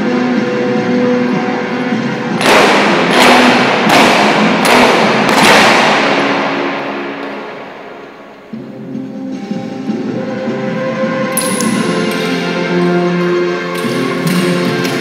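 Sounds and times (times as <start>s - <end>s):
heavy impact hits in dance music: 2.4s - 7.7s.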